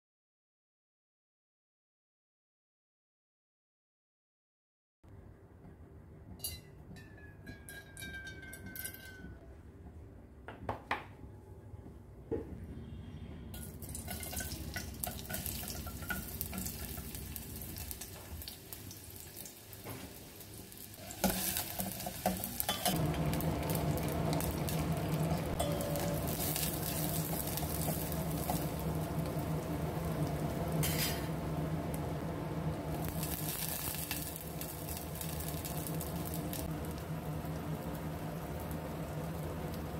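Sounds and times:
onion frying in oil: 13.6s - 39.9s
steady low hum: 22.8s - 39.9s
spoon scraping a steel pot: 30.8s - 31.3s.

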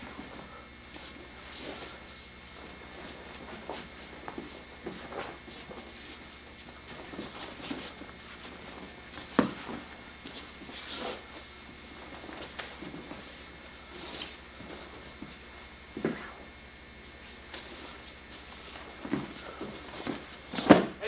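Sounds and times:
footfalls on a mat: 0.0s - 16.5s, 17.3s - 21.0s
body thudding onto a mat: 6.9s - 11.2s, 18.4s - 21.0s.

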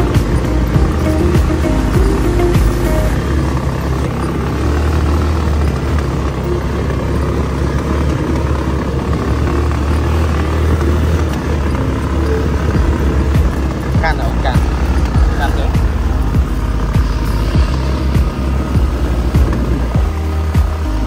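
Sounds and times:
buggy engine drone: 0.0s - 21.0s
road rumble: 0.0s - 21.0s
wind: 0.0s - 21.0s.

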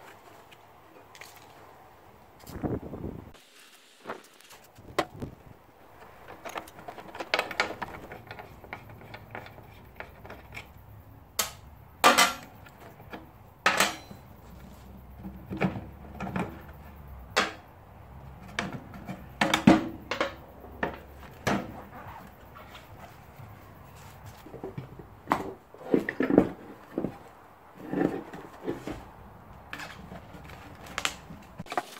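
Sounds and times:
metal spanner clinking on bolts: 11.4s - 12.6s, 13.6s - 14.2s.

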